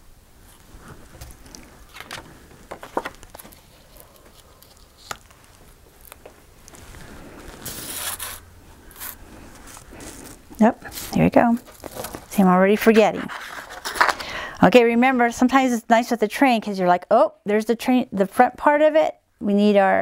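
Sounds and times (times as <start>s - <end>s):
paper rustling: 0.5s - 14.3s.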